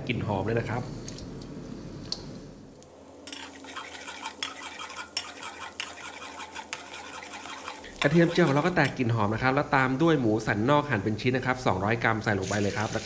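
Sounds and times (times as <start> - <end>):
spatula scraping a steel wok: 3.3 - 9.0
garlic frying in hot oil: 12.4 - 13.0.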